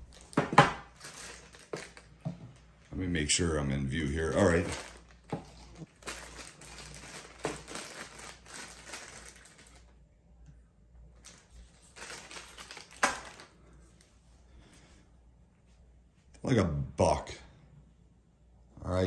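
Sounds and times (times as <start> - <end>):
plastic bag rustling: 0.0 - 2.2, 3.9 - 9.9, 11.1 - 13.8.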